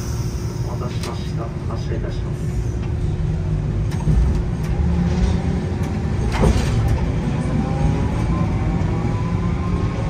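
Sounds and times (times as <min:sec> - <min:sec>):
streetcar rumbling on rails: 0:00.0 - 0:10.0.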